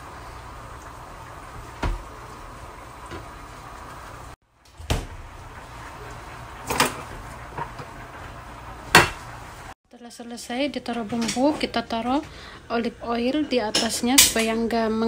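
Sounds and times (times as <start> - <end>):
kitchen knocks and clatters: 1.6 - 2.1, 6.6 - 8.0, 8.8 - 9.3, 10.9 - 12.2, 13.4 - 14.6.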